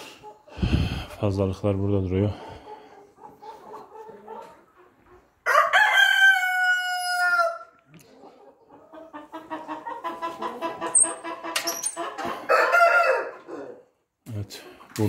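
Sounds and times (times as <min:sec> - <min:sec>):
chickens clucking: 0:00.0 - 0:01.1, 0:01.8 - 0:05.5, 0:07.8 - 0:14.1
rooster crowing: 0:05.4 - 0:07.7, 0:12.3 - 0:13.8.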